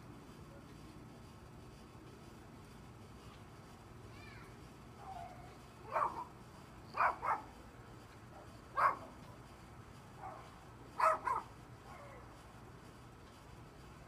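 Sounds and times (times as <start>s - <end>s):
dog barking: 5.9s - 6.3s, 7.0s - 7.5s, 8.8s - 9.1s, 10.2s - 12.2s.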